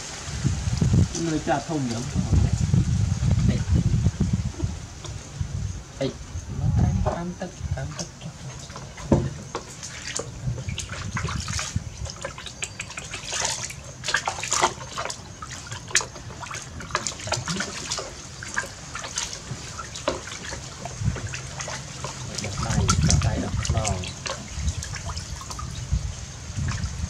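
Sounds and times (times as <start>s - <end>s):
water splashing in a plastic basin: 7.8s - 27.0s.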